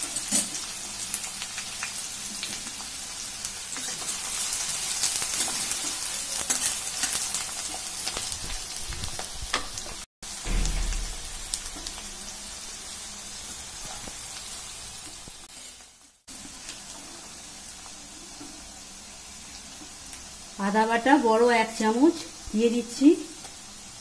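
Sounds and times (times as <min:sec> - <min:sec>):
onions sizzling in oil: 0:00.0 - 0:24.0
low thump: 0:10.4 - 0:12.2.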